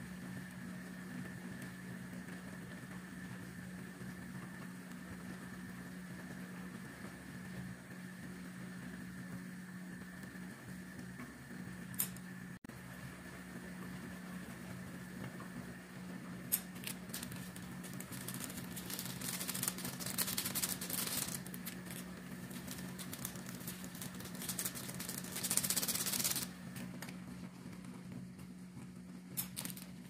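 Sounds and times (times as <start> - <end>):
steady low hum: 0.0 - 30.0
water boiling with bubbling crackle: 0.0 - 30.0
seasoning powder shaken from sachet: 16.6 - 26.6.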